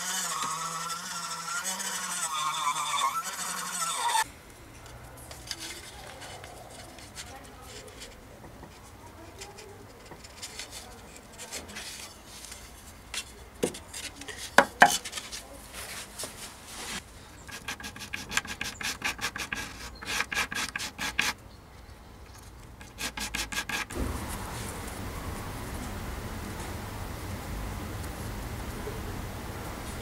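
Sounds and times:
wood rubbed on sandpaper: 0.0s - 4.3s, 16.8s - 21.4s, 22.8s - 23.9s.

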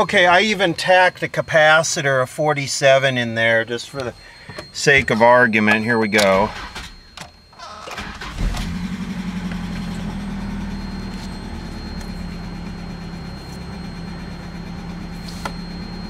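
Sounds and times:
car engine starting and idling: 6.2s - 16.0s.

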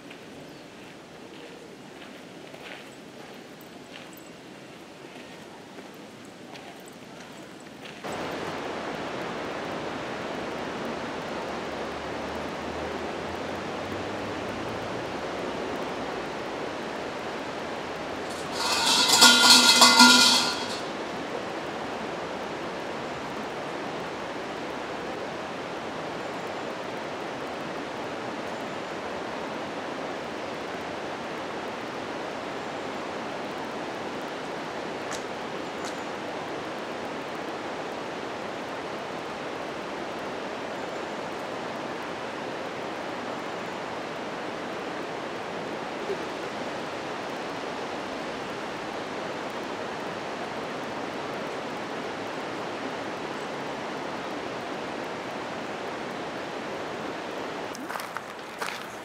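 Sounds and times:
steady rushing noise: 18.2s - 21.0s.

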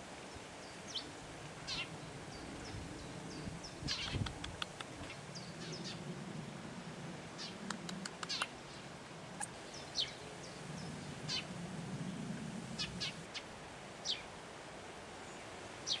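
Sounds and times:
young owls squeaky begging calls: 3.8s - 4.6s, 11.2s - 11.5s, 12.7s - 13.2s.

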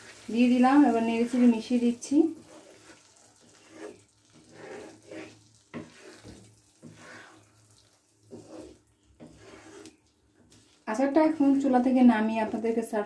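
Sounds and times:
spatula stirring sticky pickle: 0.0s - 13.0s
wet squelching and scraping strokes: 1.4s - 11.0s.

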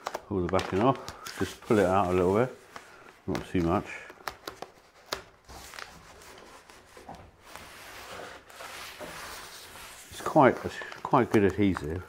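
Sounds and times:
foam tape rubbing on board: 5.5s - 10.8s.

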